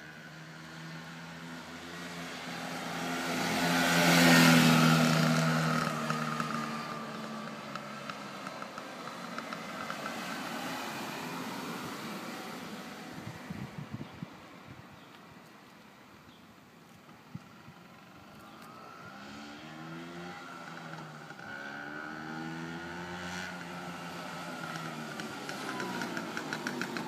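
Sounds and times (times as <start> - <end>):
scooter engine passing: 0.0 - 14.2, 17.0 - 27.0.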